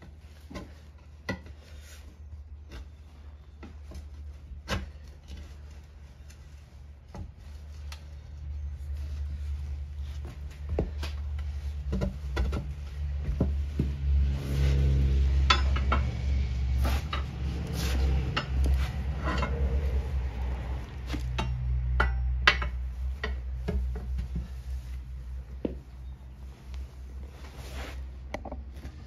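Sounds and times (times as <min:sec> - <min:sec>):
metal tools clanking on wheel rim: 0:15.3 - 0:20.1, 0:21.2 - 0:24.6.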